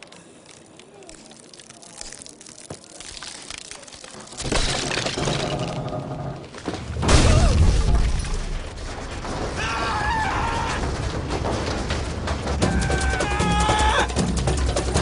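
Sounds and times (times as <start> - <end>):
low rumble of rolling wood: 0.0 - 15.0
wooden tower cracking and breaking: 0.0 - 15.0
heavy crash: 4.4 - 13.4.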